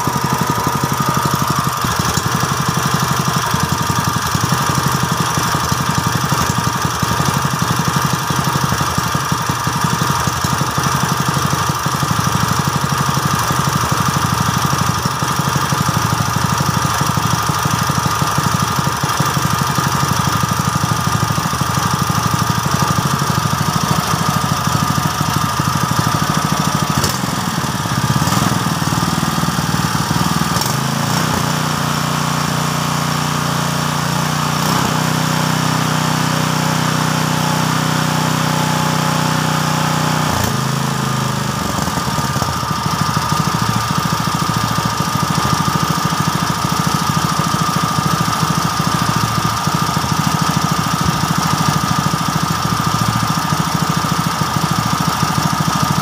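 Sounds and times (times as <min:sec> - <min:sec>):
petrol engine running: 0:00.0 - 0:32.0, 0:40.2 - 0:56.0.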